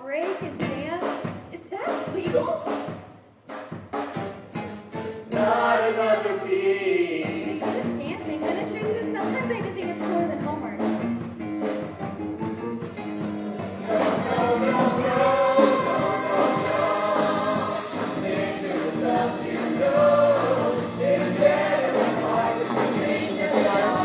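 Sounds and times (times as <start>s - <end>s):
group singing over backing track: 5.3s - 7.9s, 13.5s - 24.0s.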